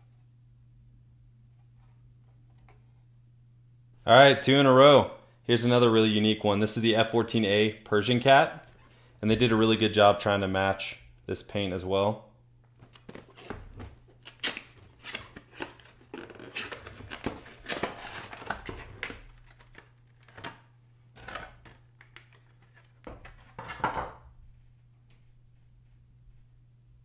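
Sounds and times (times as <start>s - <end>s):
plastic packaging crinkling: 12.8s - 23.6s.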